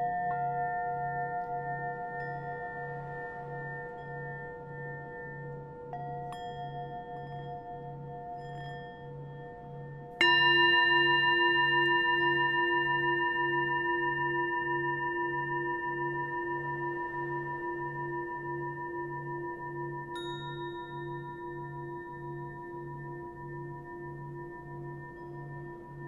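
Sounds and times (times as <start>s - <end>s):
bell-like tone: 10.2s - 26.0s.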